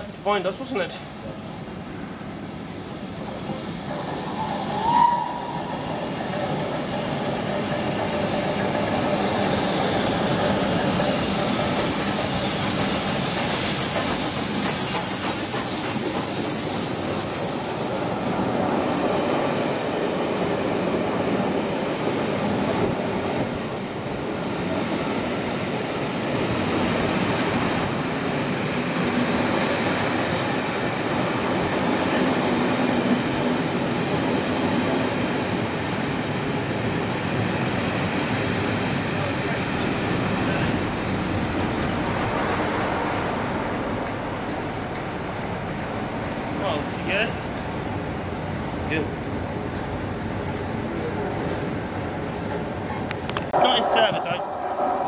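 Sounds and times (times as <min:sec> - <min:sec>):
train wheels rumbling on rails: 0:00.0 - 0:55.0
train whistle: 0:04.3 - 0:05.8.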